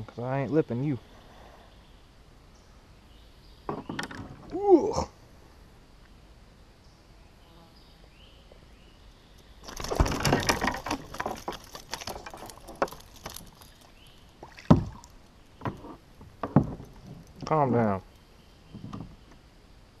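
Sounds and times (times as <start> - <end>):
water splashes: 9.6 - 15.4
fish thrashing against kayak hull: 9.6 - 17.4.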